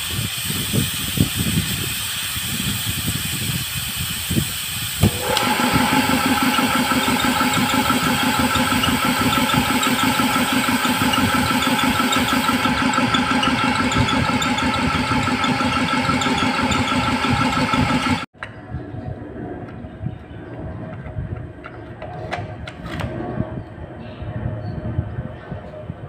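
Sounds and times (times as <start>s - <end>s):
piston air compressor running: 0.0s - 18.3s.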